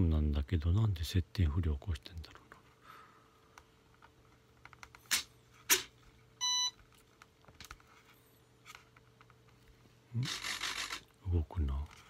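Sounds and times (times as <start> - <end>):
short electronic beep: 6.4 - 6.8.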